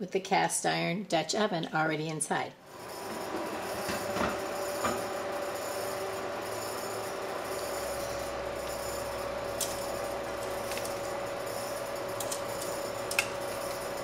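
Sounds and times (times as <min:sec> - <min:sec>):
background hum: 0:02.7 - 0:14.0
metal tongs clinking on dishes: 0:12.1 - 0:13.6.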